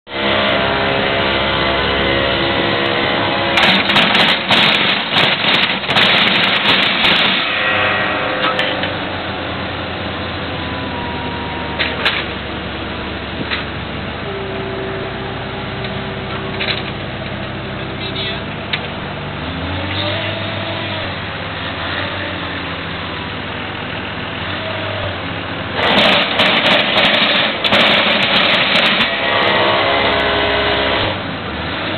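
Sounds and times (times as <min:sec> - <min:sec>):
excavator diesel engine running: 0:00.1 - 0:31.9
harsh rattling with crackles: 0:03.6 - 0:08.9, 0:25.8 - 0:29.3.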